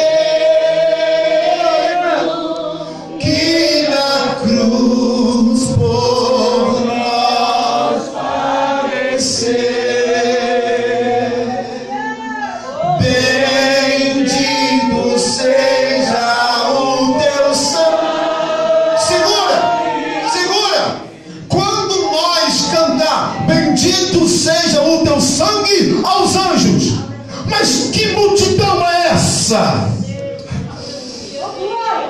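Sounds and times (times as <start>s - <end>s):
voices singing along: 0.0s - 32.0s
man singing hymn over loudspeaker: 1.6s - 8.1s, 12.8s - 18.1s, 19.0s - 30.8s.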